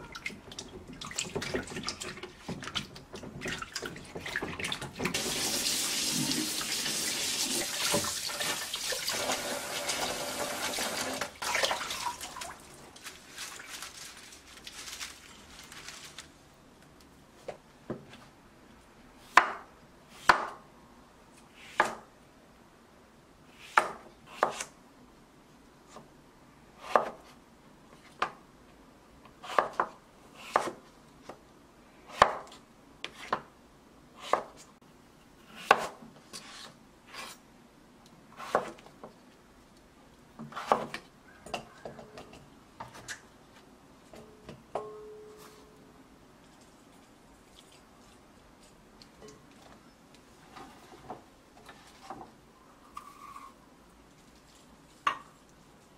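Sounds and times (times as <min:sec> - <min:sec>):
light ring of glass bowl: 0:44.8 - 0:45.8.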